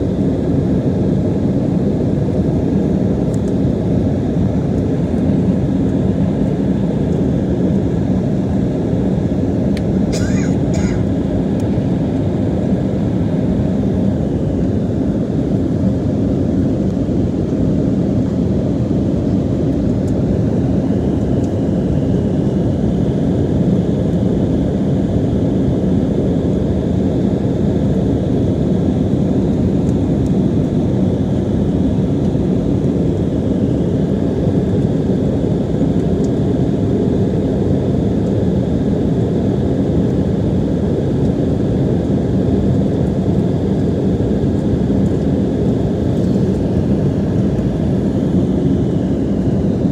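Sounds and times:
jet cabin engine rush: 0.0s - 49.9s.

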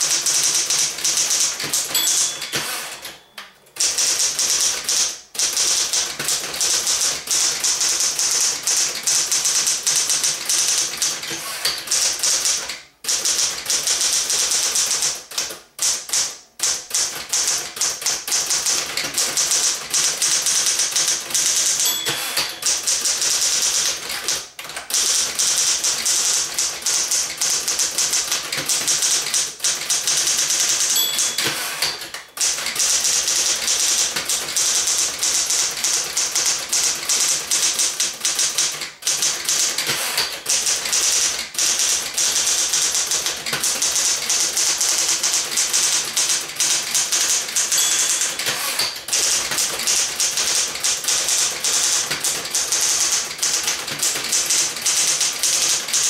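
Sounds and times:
typewriter typebars clacking: 0.0s - 56.0s
typewriter bell ding: 0.1s - 5.1s, 18.8s - 24.2s, 30.0s - 38.6s, 39.3s - 56.0s.

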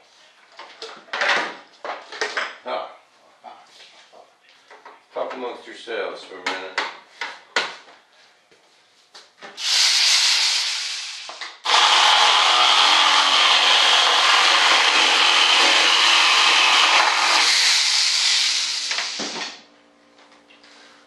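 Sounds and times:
power tool sanding: 9.6s - 19.6s.

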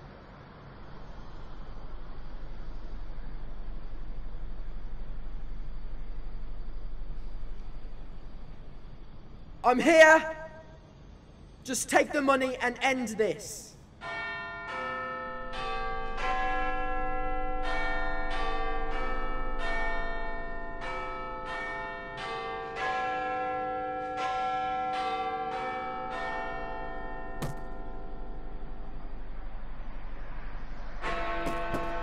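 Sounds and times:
steady low hum: 0.0s - 11.8s, 27.4s - 32.0s
bells chiming a slow melody: 14.0s - 27.4s.

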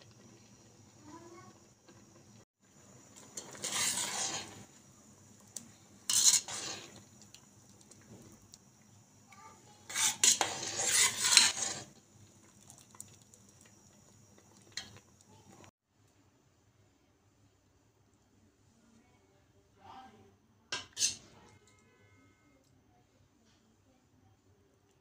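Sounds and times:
metal ladle scraping a pot: 3.2s - 4.7s, 6.0s - 7.1s, 9.8s - 12.0s, 20.8s - 21.3s.

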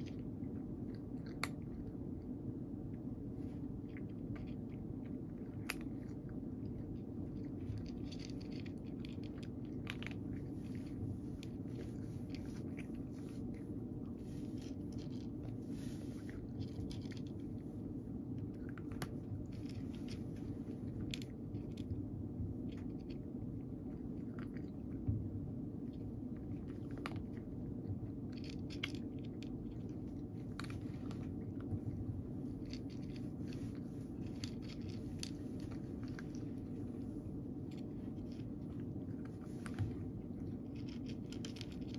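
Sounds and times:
cat crunching dry kibble: 0.0s - 41.9s
steady low hum: 0.0s - 41.9s.

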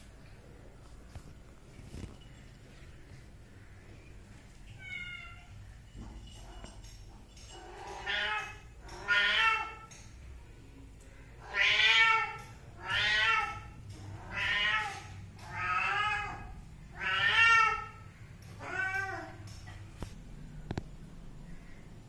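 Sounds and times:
cat meowing: 4.7s - 5.5s, 7.8s - 9.9s, 11.4s - 19.4s.

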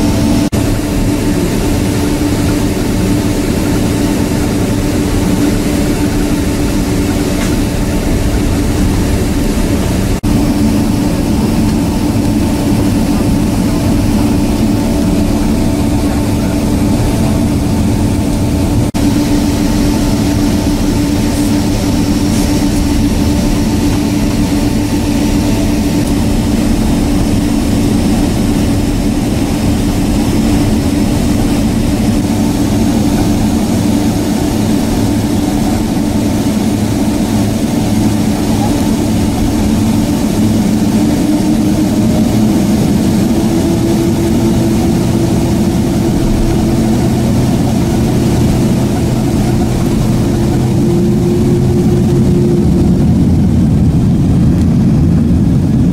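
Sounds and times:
jet engines droning: 0.0s - 55.9s.

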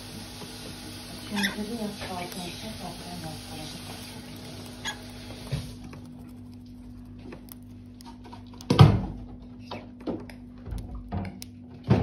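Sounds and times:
bird pecking seed husks: 1.3s - 8.7s.

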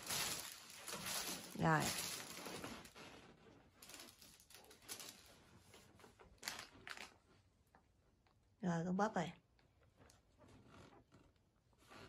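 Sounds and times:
faint clicks and rustles: 0.0s - 8.6s, 9.5s - 12.0s.

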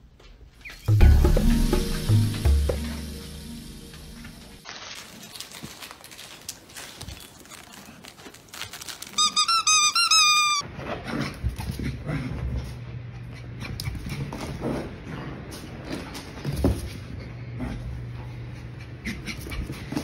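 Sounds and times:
squeaky toy squeaking: 9.2s - 10.6s.

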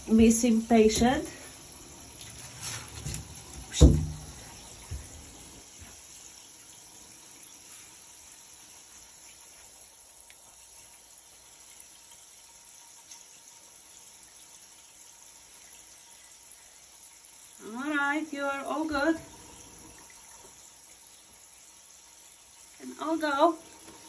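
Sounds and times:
running water: 0.0s - 24.0s
thump: 3.0s - 4.3s.

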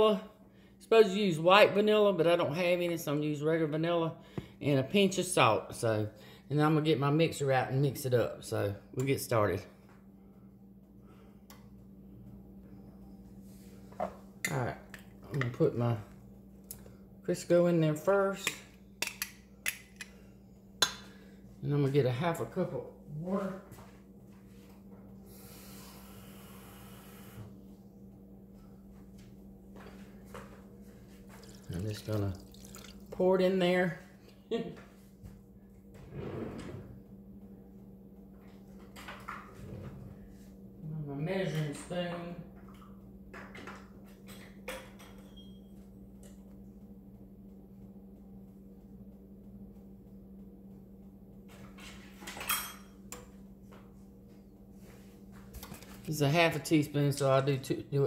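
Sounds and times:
faint low hum: 0.0s - 58.0s
water running from a tap: 31.3s - 33.2s.

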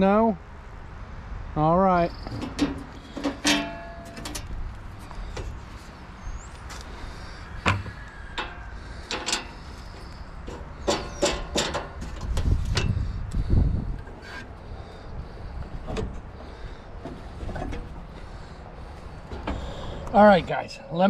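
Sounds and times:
metal covers clicking and clattering: 2.3s - 4.6s, 8.4s - 9.7s, 10.4s - 12.9s.

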